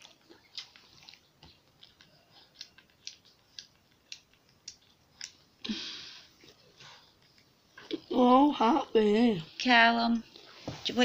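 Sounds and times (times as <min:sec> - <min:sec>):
dogs' wet mouth clicks: 0:00.5 - 0:05.4.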